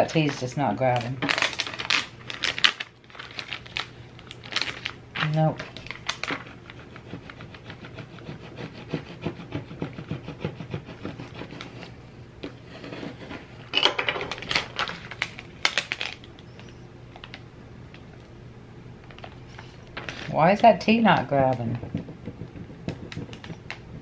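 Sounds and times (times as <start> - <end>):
plastic sheet crinkling: 0.1 - 6.8, 14.2 - 16.4
plastic scraper scratching tape: 6.1 - 11.9, 21.5 - 24.0.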